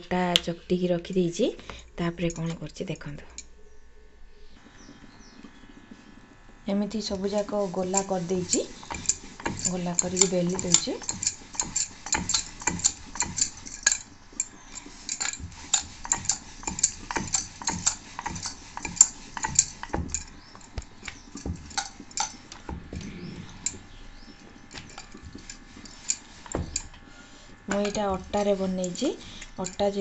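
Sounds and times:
rolling pin clicking on wooden board: 7.1s - 14.0s, 15.1s - 23.1s.

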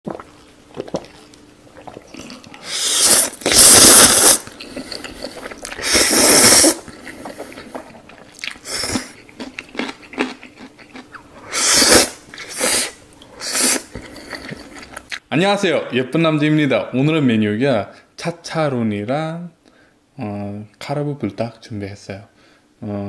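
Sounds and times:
noodles being slurped: 0.1s - 9.2s, 9.8s - 15.1s
chewing: 4.4s - 6.1s, 6.8s - 11.3s, 13.2s - 15.2s.

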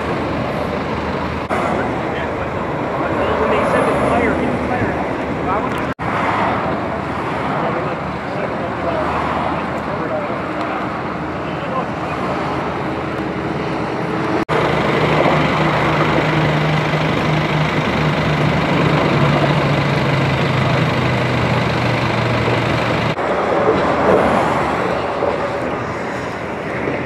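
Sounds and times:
freeway traffic rumble: 0.0s - 27.0s.

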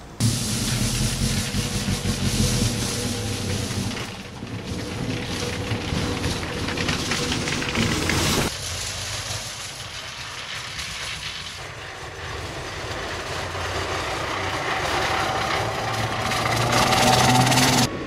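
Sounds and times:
low motor hum: 0.2s - 8.5s
brooms sweeping snow off rails: 0.2s - 18.0s.

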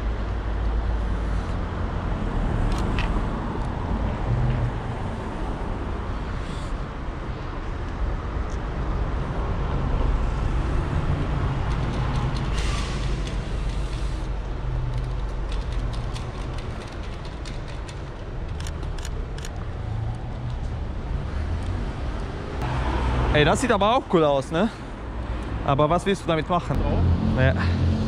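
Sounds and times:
street traffic rumble: 0.0s - 28.0s.

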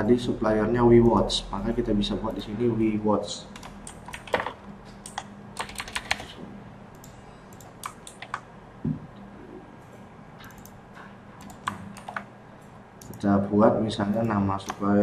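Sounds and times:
typing on keyboard: 3.6s - 6.4s, 7.0s - 8.4s, 10.4s - 10.8s, 11.4s - 12.3s.

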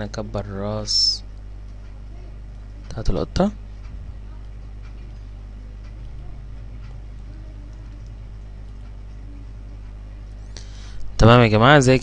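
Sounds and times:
low electrical hum with hiss: 0.0s - 12.0s
faint clicks: 3.8s - 11.1s.

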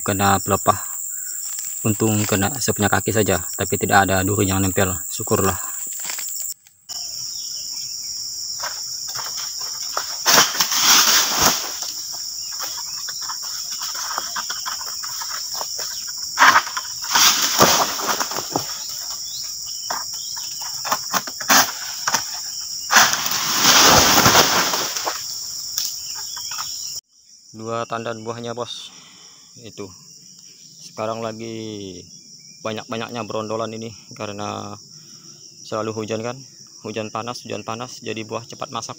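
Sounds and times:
insects droning: 0.0s - 38.9s
palm fronds rustling and falling: 5.8s - 6.5s, 8.6s - 20.0s, 20.8s - 26.0s.

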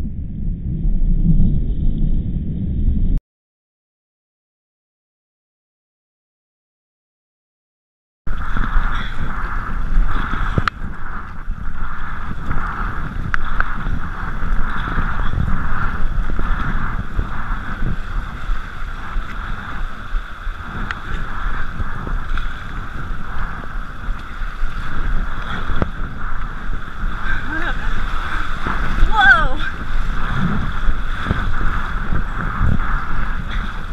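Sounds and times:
wind buffeting microphone: 0.0s - 3.2s, 8.3s - 33.9s
paddle strokes splashing: 8.3s - 33.9s
river water rushing: 27.3s - 30.3s.

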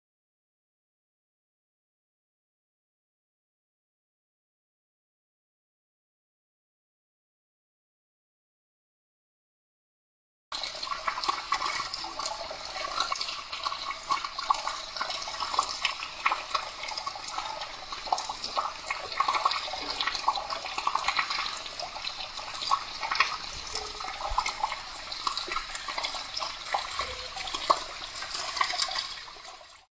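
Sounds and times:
water gushing onto concrete: 10.6s - 29.9s.

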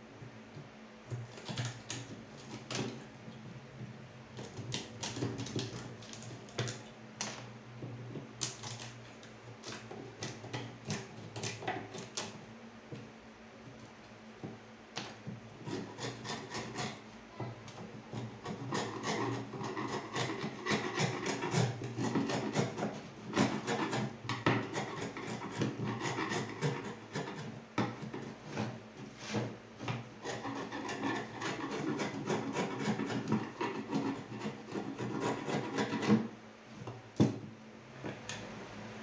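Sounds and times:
chisel scraping wood: 3.8s - 6.8s, 15.6s - 36.3s.

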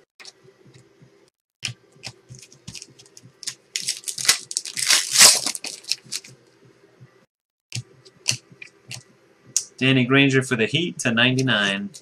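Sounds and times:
foil wrapper crinkling: 2.3s - 6.4s.

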